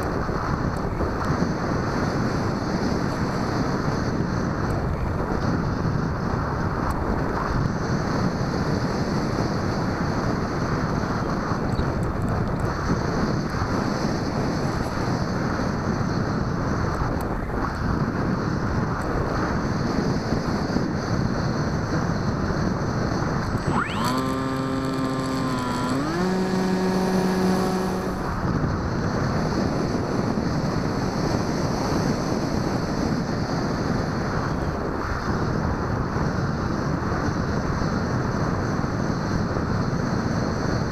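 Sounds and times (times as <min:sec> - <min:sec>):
electric motor and propeller: 0:00.0 - 0:35.4
wind rushing over microphone: 0:00.0 - 0:40.9
rising pitched tone: 0:23.6 - 0:28.4.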